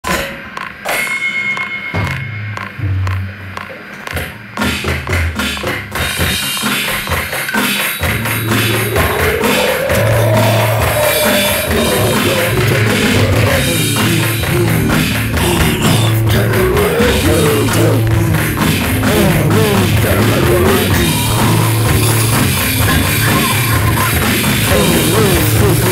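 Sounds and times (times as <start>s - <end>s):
drum hits: 2.0s - 25.9s
loud rock music: 4.6s - 25.9s
sliding tone rising and falling: 8.3s - 13.6s.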